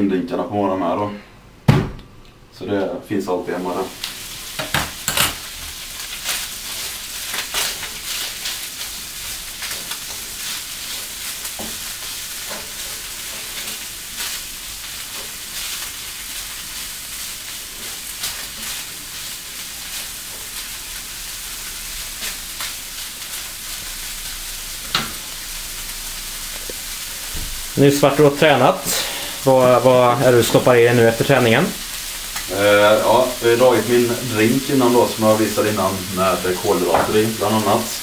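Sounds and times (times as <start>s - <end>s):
tuna sizzling in a frying pan: 3.6s - 38.0s
spatula scraping and tapping pan: 9.6s - 13.9s.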